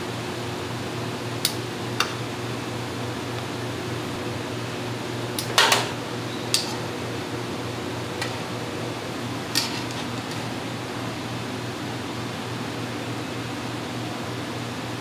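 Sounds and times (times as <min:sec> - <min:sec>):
kitchen fan humming: 0:00.0 - 0:15.0
metal tongs clinking on pan: 0:06.5 - 0:06.8, 0:09.5 - 0:10.5.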